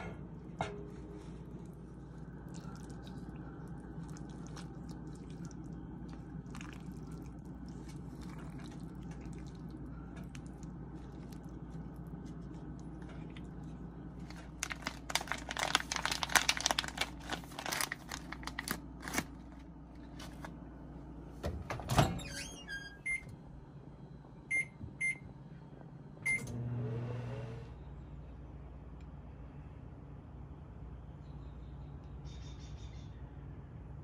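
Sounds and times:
microwave low hum: 0:00.0 - 0:34.0
kitchen crinkling and clattering: 0:10.0 - 0:20.6
microwave keypad beeps: 0:22.9 - 0:23.3, 0:24.5 - 0:25.3, 0:26.2 - 0:26.6.

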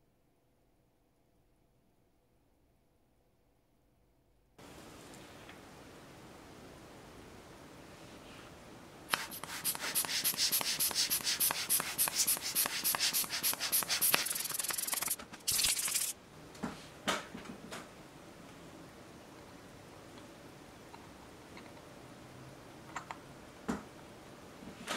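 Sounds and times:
scratchy rubbing on a watch: 0:09.1 - 0:16.1
short hiss: 0:09.1 - 0:16.2.

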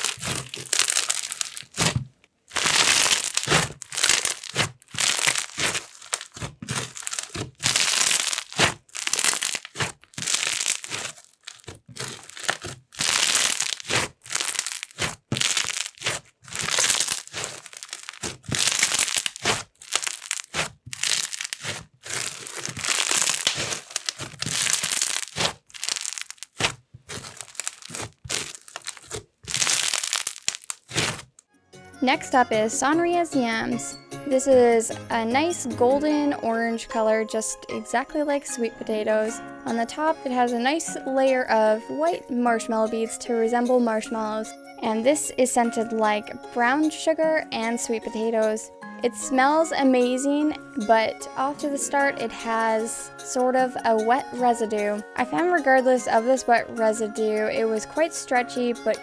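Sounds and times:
slime beads crunching and crackling: 0:00.0 - 0:31.4.

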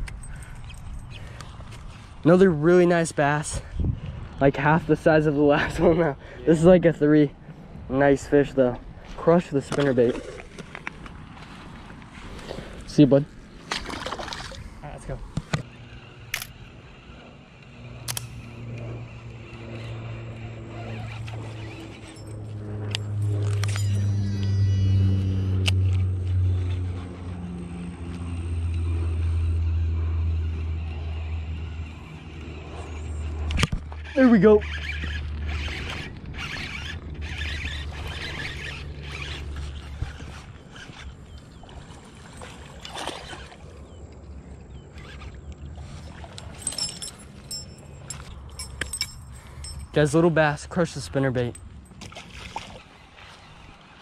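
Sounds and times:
wind rumble on microphone: 0:03.4 - 0:05.0, 0:34.9 - 0:42.0
water splashing: 0:13.6 - 0:14.8, 0:39.5 - 0:43.8, 0:52.0 - 0:54.0
sharp click: 0:18.0 - 0:18.4.

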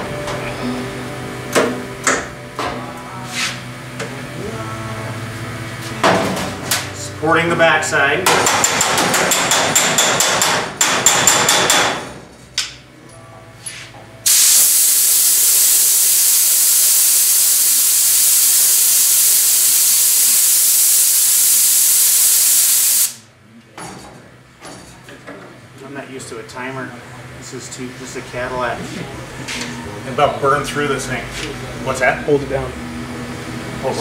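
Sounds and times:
compressed air blow gun hissing: 0:14.3 - 0:23.2.

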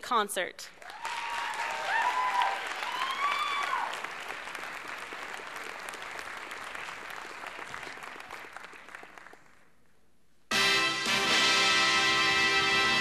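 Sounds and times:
audience applause: 0:00.8 - 0:09.7
loud music: 0:10.5 - 0:13.0.

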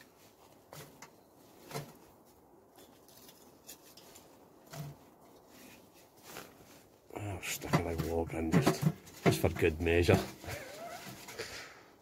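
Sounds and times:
wood stove clicks and knocks: 0:07.6 - 0:10.2.

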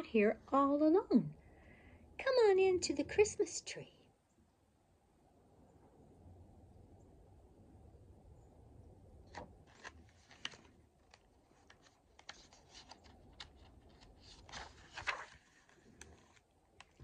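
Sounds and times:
book pages turning: 0:09.3 - 0:17.0
paper rustling and crinkling: 0:09.3 - 0:17.0.

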